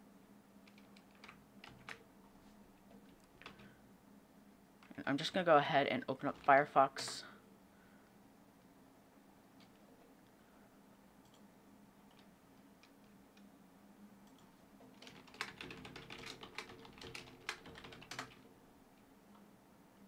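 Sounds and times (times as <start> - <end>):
typing on computer keyboard: 0.6 - 2.0, 2.9 - 3.8, 14.3 - 18.4.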